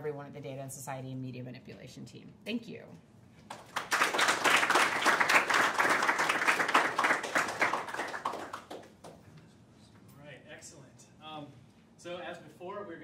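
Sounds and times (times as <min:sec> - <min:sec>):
audience applauding: 0:03.5 - 0:09.2.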